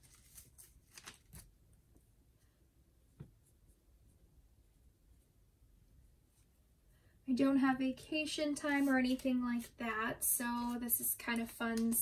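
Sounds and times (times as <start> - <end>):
paper bills rustling: 0.0 - 1.5.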